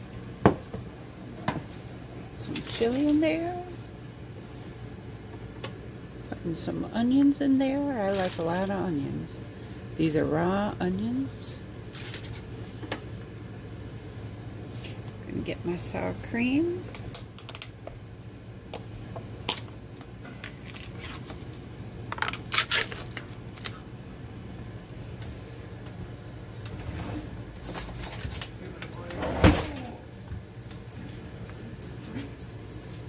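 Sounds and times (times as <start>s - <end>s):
low steady hum: 0.0s - 33.0s.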